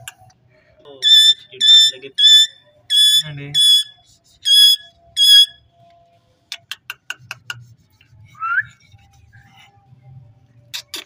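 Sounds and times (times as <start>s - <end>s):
parakeet whistling calls: 1.0s - 5.6s.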